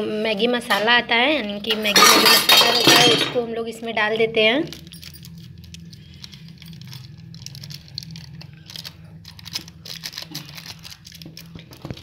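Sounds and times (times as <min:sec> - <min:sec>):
steady low hum: 0:00.0 - 0:12.0
foil sachet crinkling: 0:04.7 - 0:12.0.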